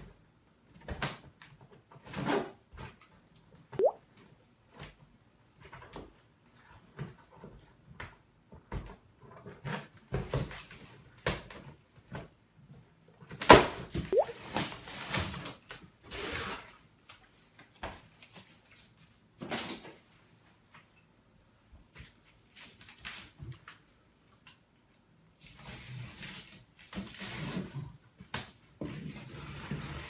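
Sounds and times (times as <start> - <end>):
cardboard scrapes and rustles: 28.9 - 30.0.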